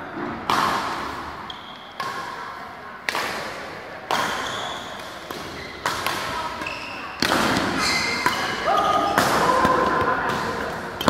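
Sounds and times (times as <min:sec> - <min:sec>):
racket hitting shuttlecock: 0:00.5 - 0:10.8
shoes squeaking on court: 0:01.4 - 0:02.0, 0:04.3 - 0:10.1.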